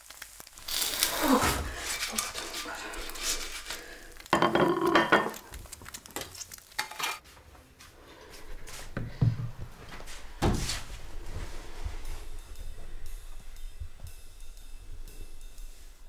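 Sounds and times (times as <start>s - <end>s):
dishes clattering: 4.3s - 5.5s
plates clinking: 4.3s - 5.5s.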